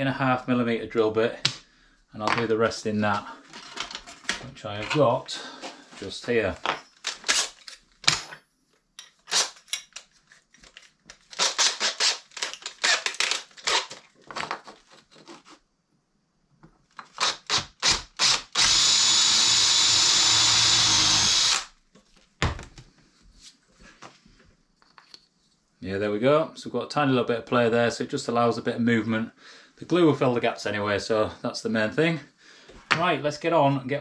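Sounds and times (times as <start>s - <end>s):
drill chuck clicking and rattling: 17.1s - 21.7s
drill motor running: 17.2s - 21.7s.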